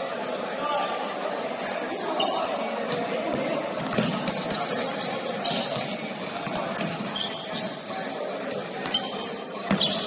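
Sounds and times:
gym crowd din: 0.0 - 10.0
shoes squeaking on court: 1.2 - 10.0
ball bouncing: 2.9 - 4.8.

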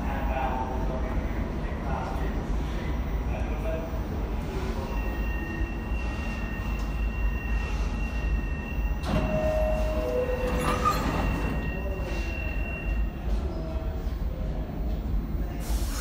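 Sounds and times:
subway car low rumble: 0.0 - 16.0
doors sliding shut: 9.0 - 11.7
two-note door chime: 9.0 - 11.9.

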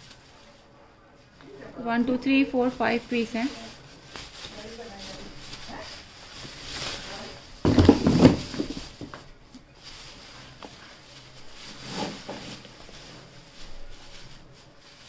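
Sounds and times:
plastic bags rustling: 0.0 - 15.0
bags bumping cardboard box: 3.0 - 9.3, 11.5 - 13.2.

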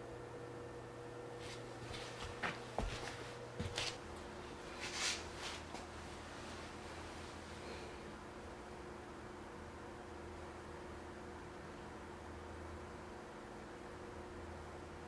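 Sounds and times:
steady low hum: 0.0 - 15.0
short rustle: 4.7 - 7.5.

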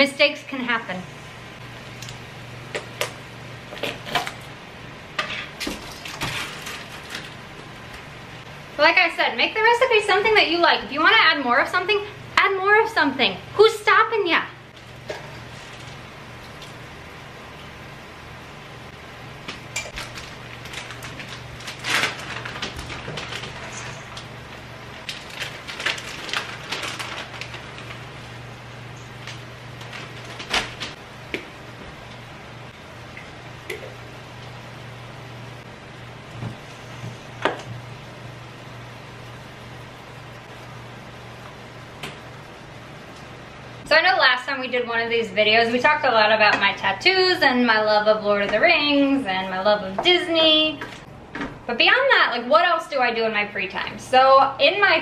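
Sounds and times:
steady low hum: 0.0 - 55.0
plastic bag crinkling: 19.8 - 31.0.

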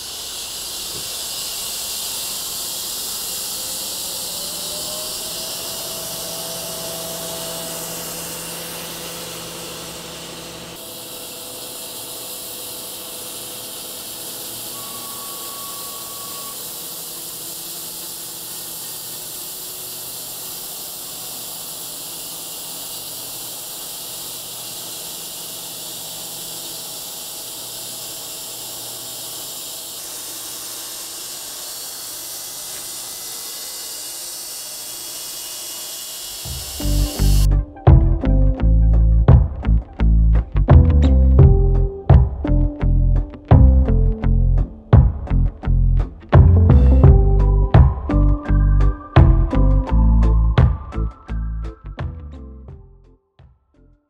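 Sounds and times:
saw blade hissing through wood: 0.0 - 37.6
faint sawmill hum: 0.0 - 52.2.

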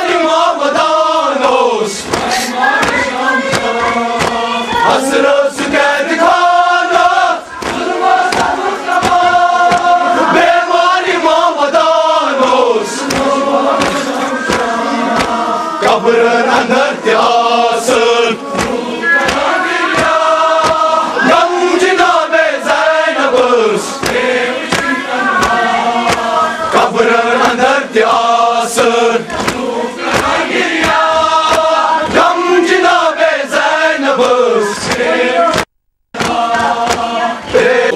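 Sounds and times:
crowd of men chanting: 0.0 - 37.9
hands slapping chests: 2.0 - 10.0, 13.0 - 15.5, 18.5 - 21.0, 24.0 - 27.6, 29.3 - 32.8, 34.2 - 37.3.

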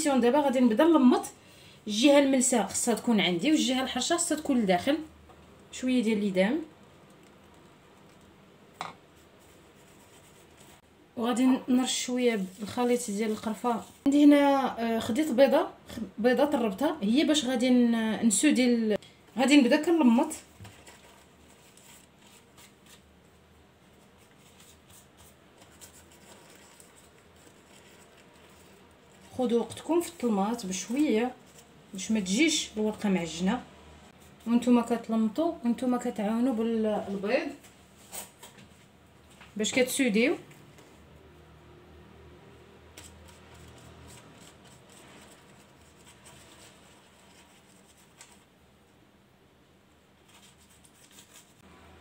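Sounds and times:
pastry sheets rustling: 7.0 - 10.9, 11.9 - 14.1, 19.8 - 33.0, 42.9 - 48.6, 50.2 - 51.7
pastry sheets crinkling: 24.0 - 31.7.

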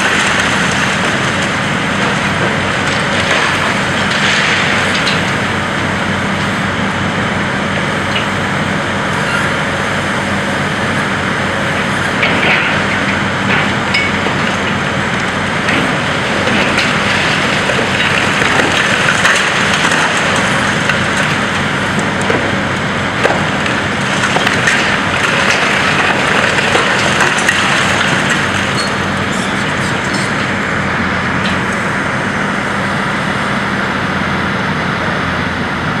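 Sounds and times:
concrete cracking and crunching: 0.0 - 5.8, 11.8 - 32.1
falling rubble clatter: 0.0 - 6.1, 11.7 - 32.1
diesel engine running: 0.0 - 36.0.

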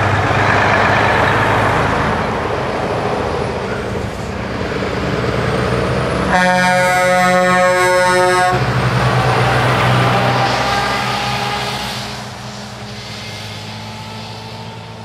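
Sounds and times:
truck diesel engine passing: 0.0 - 15.0
truck air horn blast: 6.3 - 8.9, 10.0 - 12.3.

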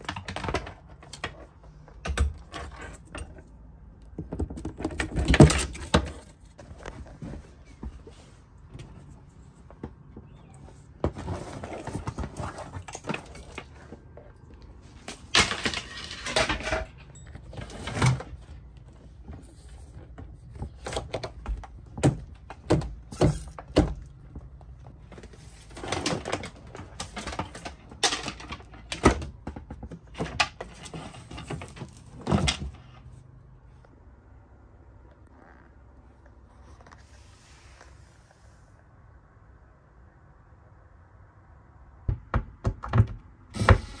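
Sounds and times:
knocks clicks and thuds: 0.0 - 8.1, 42.0 - 43.9.

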